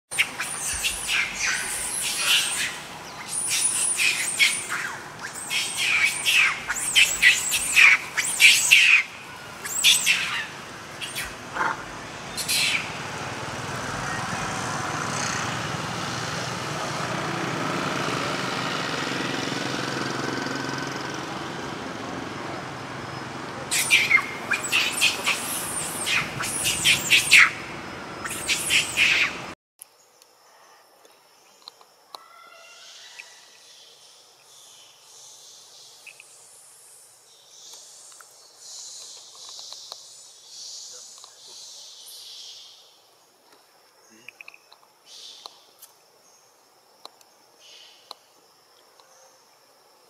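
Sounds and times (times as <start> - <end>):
steady background noise: 0.1 - 30.4
baby monkey squealing: 0.2 - 12.9, 23.7 - 27.6, 28.2 - 29.4.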